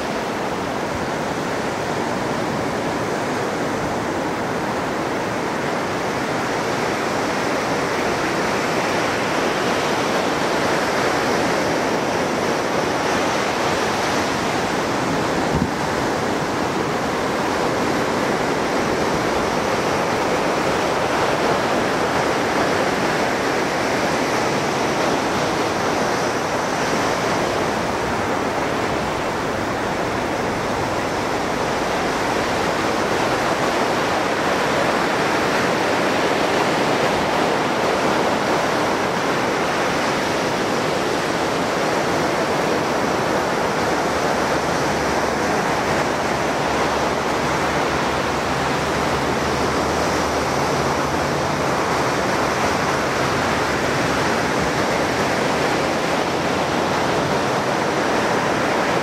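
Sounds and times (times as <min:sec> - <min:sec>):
surf breaking on beach: 0:00.0 - 0:59.0.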